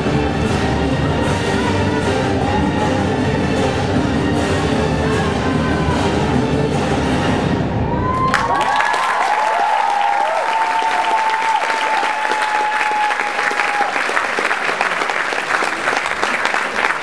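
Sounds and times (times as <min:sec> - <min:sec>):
music: 0:00.0 - 0:08.6
high-pitched cheers: 0:07.8 - 0:14.5
audience applauding: 0:08.0 - 0:17.0.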